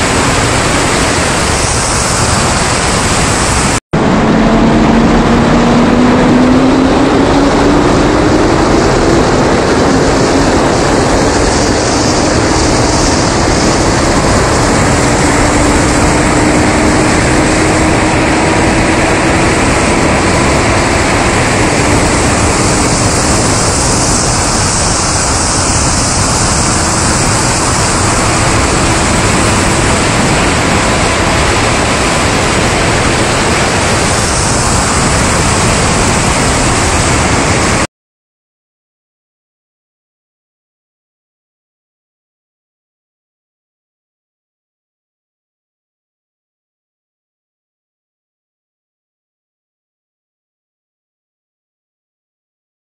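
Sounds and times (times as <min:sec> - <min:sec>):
heavy wind roar: 0:00.0 - 0:37.9.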